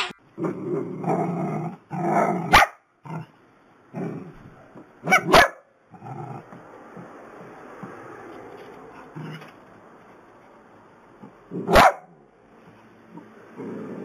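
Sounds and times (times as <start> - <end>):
dogs barking and growling: 0.4 - 7.0, 11.4 - 12.1, 13.1 - 14.0
sharp high dog barks: 2.5 - 2.8, 5.0 - 5.7, 11.6 - 12.2.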